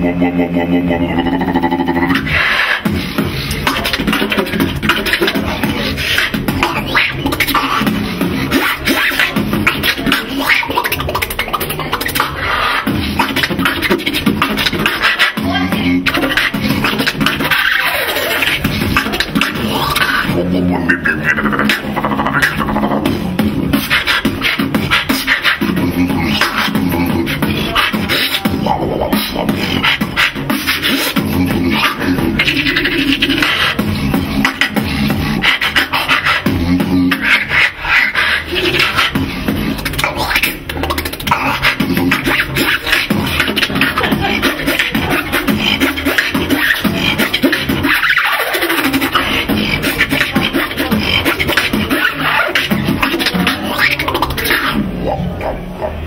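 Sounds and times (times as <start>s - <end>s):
hummed bass notes: 0.0s - 48.0s
man beatboxing drum hits: 0.0s - 55.1s
falling vocal sweep: 0.0s - 55.4s.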